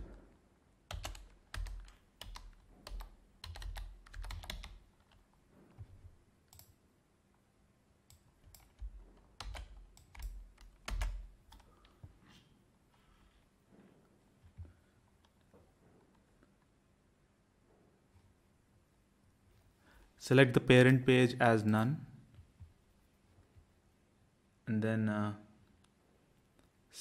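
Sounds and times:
keyboard typing: 0:00.9 - 0:06.8, 0:08.1 - 0:12.0.

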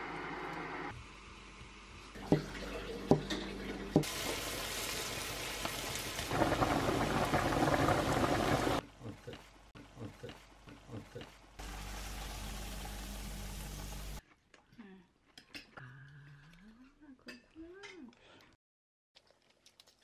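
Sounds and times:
vegetables sizzling in a frying pan: 0:04.0 - 0:08.8, 0:11.6 - 0:14.2.

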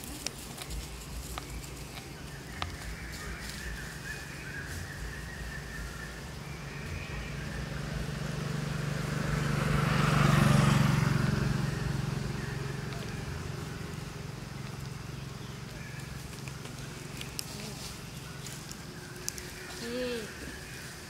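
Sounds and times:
vehicle engine passing: 0:00.0 - 0:21.0.

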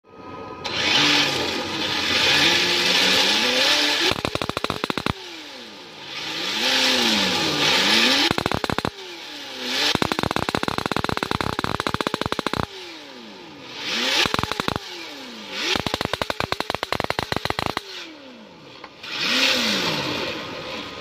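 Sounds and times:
simulated engine revving: 0:00.6 - 0:21.0
backfire pops and crackles: 0:04.0 - 0:05.2, 0:08.2 - 0:09.0, 0:09.8 - 0:12.7, 0:14.2 - 0:14.8, 0:15.8 - 0:17.8.

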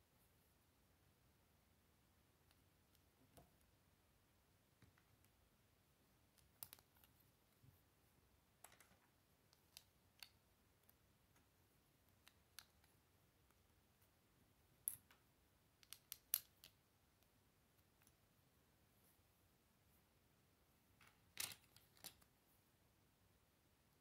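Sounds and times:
plastic bricks clicking together: 0:15.8 - 0:16.8.

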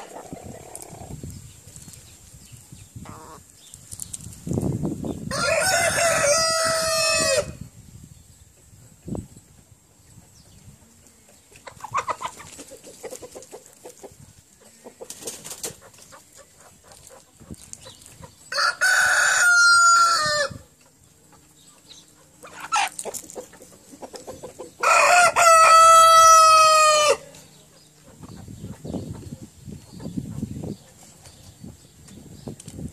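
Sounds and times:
rooster crowing: 0:05.3 - 0:07.6, 0:18.5 - 0:20.7, 0:24.8 - 0:27.3.

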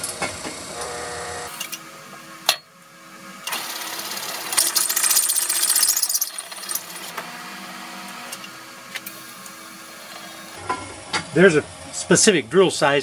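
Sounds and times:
drill press cutting steel: 0:00.7 - 0:02.7, 0:03.4 - 0:10.6.

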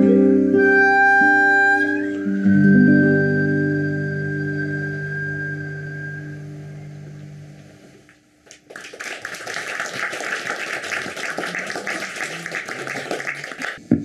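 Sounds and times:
music note: 0:00.0 - 0:07.5
audience applause: 0:08.5 - 0:13.8.

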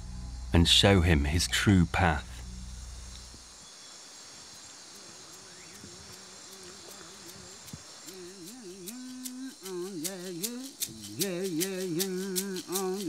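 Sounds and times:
night insects chirring: 0:00.0 - 0:13.0
man humming a chant: 0:05.0 - 0:13.0
dry shaken rattle: 0:05.7 - 0:13.0.

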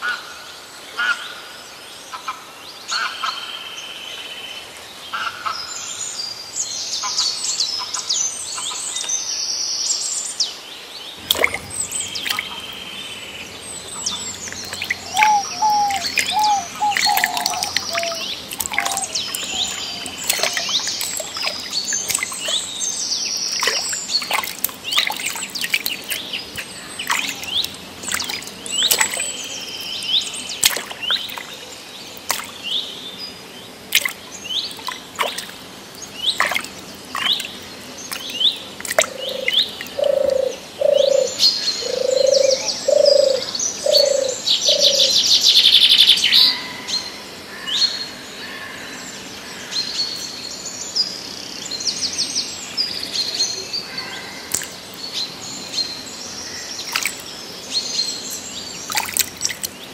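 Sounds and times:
bird low notes: 0:11.2 - 0:22.5
birds chirping: 0:11.2 - 0:46.6.

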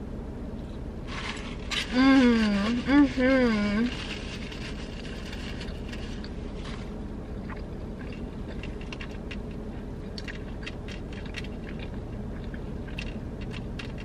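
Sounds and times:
steady low hum: 0:00.0 - 0:14.0
chewing with wet mouth clicks: 0:07.3 - 0:14.0.

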